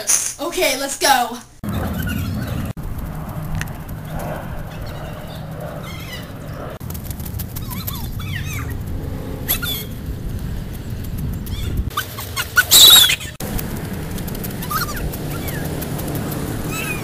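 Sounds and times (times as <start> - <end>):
birds chirping: 1.6 - 6.8, 7.5 - 13.4, 14.6 - 17.0
wind rumble on microphone: 1.6 - 12.0
running footsteps on pavement: 6.8 - 12.0, 12.8 - 17.0.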